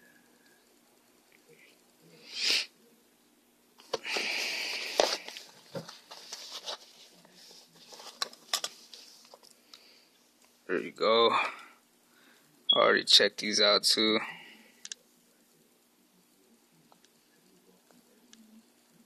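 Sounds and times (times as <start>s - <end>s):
short hiss: 2.2s - 2.7s
rustling scrape: 4.8s - 9.3s.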